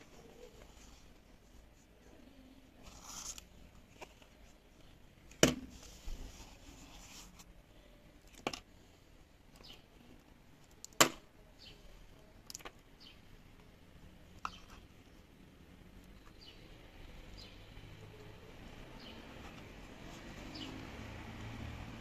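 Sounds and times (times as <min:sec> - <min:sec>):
plastic parts clicking and knocking: 0:08.2 - 0:08.7.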